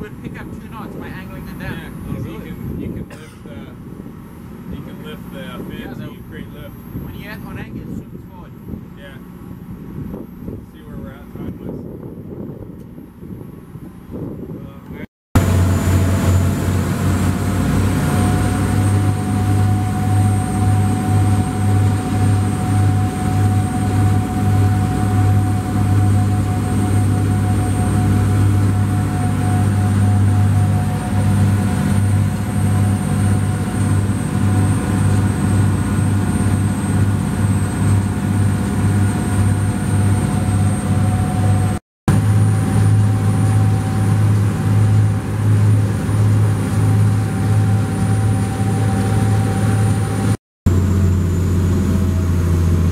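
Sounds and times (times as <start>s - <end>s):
constant machinery whine: 0.0s - 52.9s
deep pulsing engine hum: 15.4s - 52.9s.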